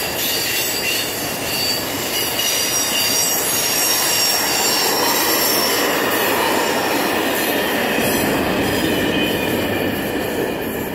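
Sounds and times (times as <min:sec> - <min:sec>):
high wheel squeal: 0:00.0 - 0:07.8
steel wheels rolling on rail: 0:00.0 - 0:10.9.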